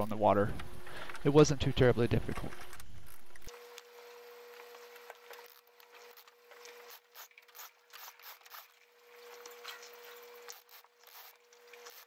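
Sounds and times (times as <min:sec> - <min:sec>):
steady low hum: 0:00.0 - 0:04.6
sailcloth and lines scraping: 0:04.0 - 0:12.0.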